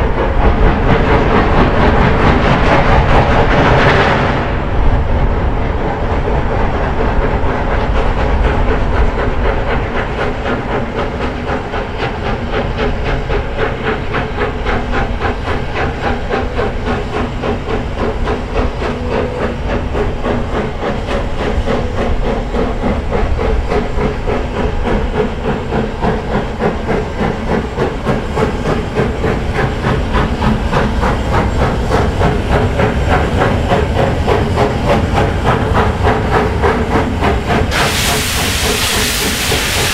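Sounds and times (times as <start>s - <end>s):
hissing steam: 0.0s - 39.9s
steam locomotive exhaust beats: 0.0s - 39.9s.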